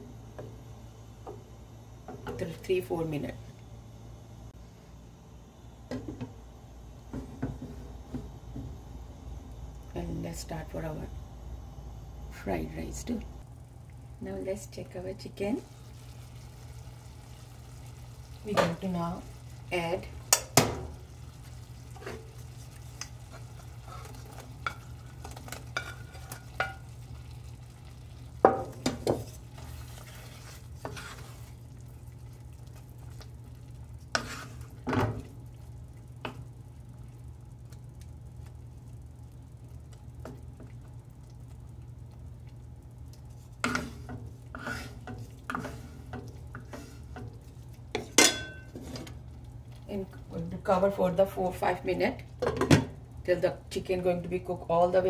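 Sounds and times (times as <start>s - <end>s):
steady low hum: 0.0s - 55.0s
wet stirring of sauce: 19.2s - 50.2s
spatula knocking and scraping pan: 23.0s - 26.9s, 28.4s - 31.5s, 34.1s - 35.3s, 43.6s - 49.2s.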